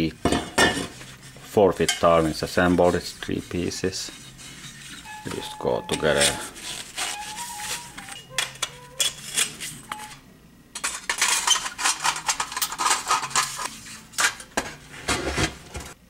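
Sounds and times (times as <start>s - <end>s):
metal tubes clinking: 4.0s - 6.5s
metal scraping and rattling: 10.8s - 16.0s.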